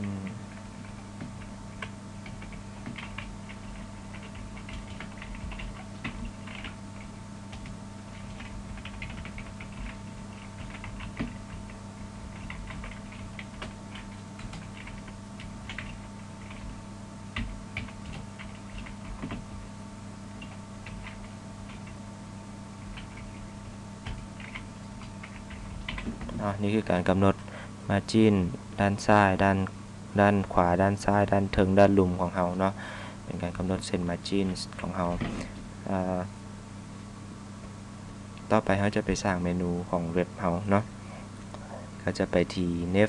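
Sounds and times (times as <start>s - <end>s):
keyboard typing: 0.0s - 16.7s, 17.4s - 19.6s, 20.4s - 22.0s, 22.8s - 26.4s
steady low hum: 0.0s - 43.0s.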